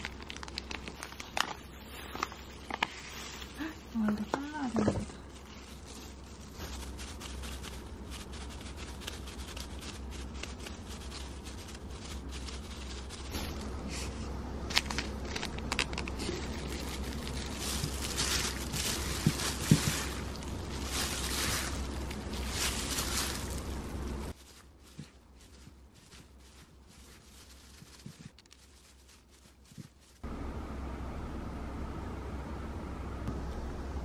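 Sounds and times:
plastic gloves crinkling: 0:00.0 - 0:30.2
low steady hum: 0:00.0 - 0:34.0
wet food squishing: 0:14.7 - 0:30.2.

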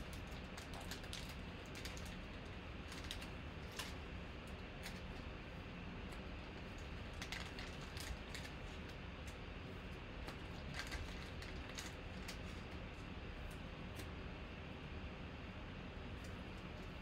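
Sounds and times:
low steady background hum: 0:00.0 - 0:17.0.

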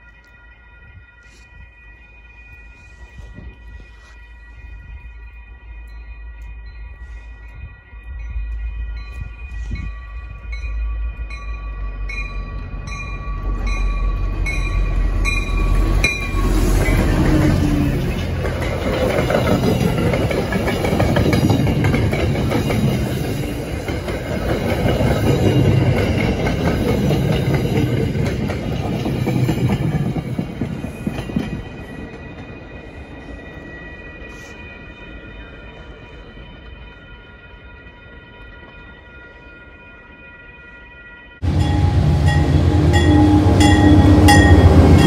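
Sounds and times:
train wheels rumbling on rails: 0:02.6 - 0:39.0, 0:41.4 - 0:45.0
warning bell ringing: 0:30.6 - 0:45.0.

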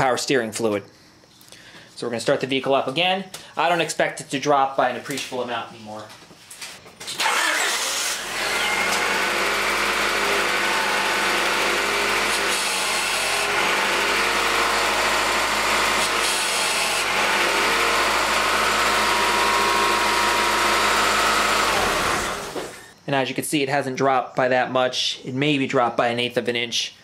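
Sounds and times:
power steering pump whining: 0:07.1 - 0:22.9
car engine running: 0:07.2 - 0:22.9.

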